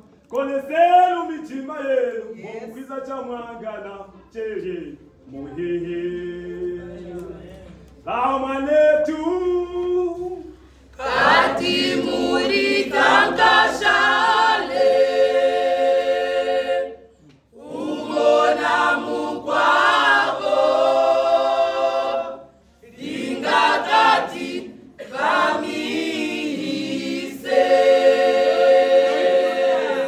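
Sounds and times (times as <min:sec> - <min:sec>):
choir singing a cappella: 0:05.3 - 0:07.2, 0:08.5 - 0:30.0.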